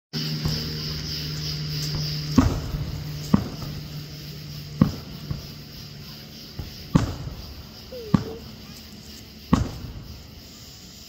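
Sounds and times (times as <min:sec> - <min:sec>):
firework bangs: 0:01.6 - 0:11.0
faint firework pops: 0:01.8 - 0:03.8, 0:06.6 - 0:08.5, 0:09.5 - 0:10.2.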